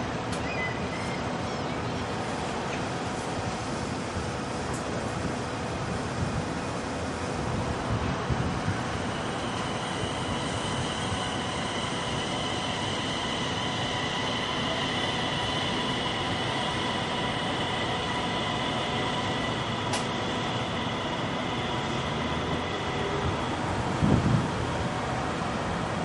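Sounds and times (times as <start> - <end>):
electric train whining pulling away: 5.4 - 26.0.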